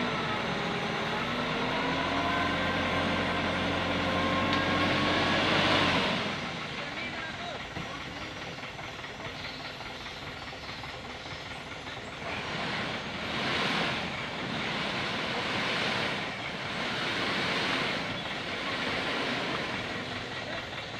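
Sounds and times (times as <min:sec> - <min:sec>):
dump truck engine running: 0:00.0 - 0:20.9
hissing rush: 0:12.3 - 0:20.5.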